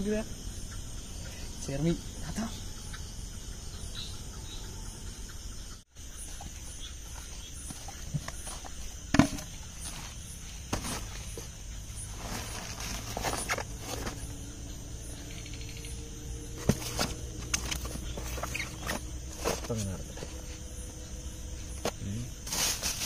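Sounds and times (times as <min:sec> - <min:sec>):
crickets trilling: 0:00.0 - 0:23.0
footsteps on dirt: 0:07.7 - 0:14.3.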